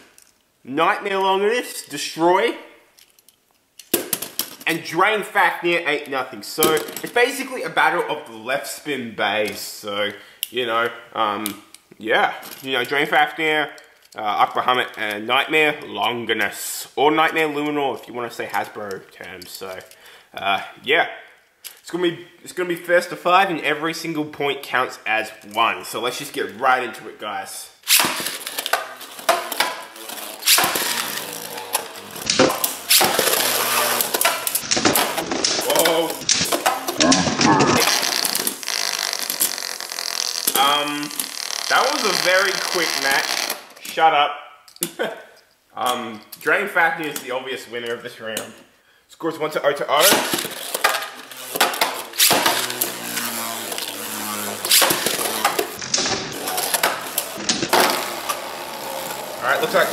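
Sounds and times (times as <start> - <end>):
top launched with zip and clatter: 27.8 - 43.6, 50.0 - 59.9
spinning tops whirring and rattling: 27.9 - 43.4, 50.1 - 59.9.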